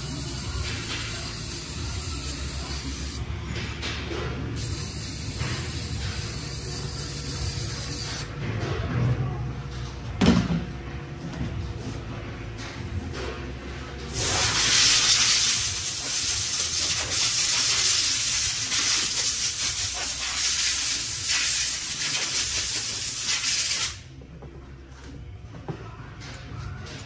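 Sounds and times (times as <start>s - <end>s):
pressurised spray hissing: 14.2s - 24.0s.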